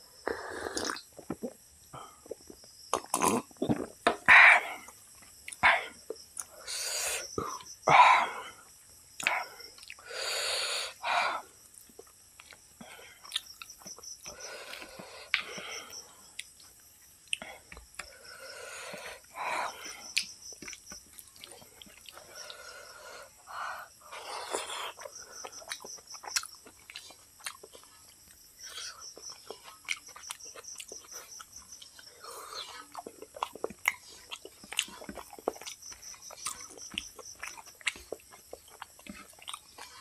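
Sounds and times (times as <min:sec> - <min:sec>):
chewing and lip smacks: 0:09.2 - 0:10.0, 0:11.7 - 0:18.2, 0:19.9 - 0:22.6, 0:24.5 - 0:40.0.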